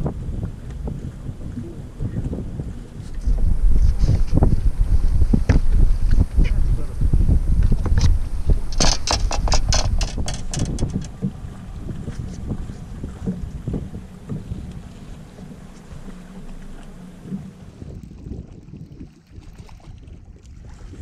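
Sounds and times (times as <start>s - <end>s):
wind buffeting microphone: 0.0s - 21.0s
sharp clicks and rattles: 7.6s - 11.2s.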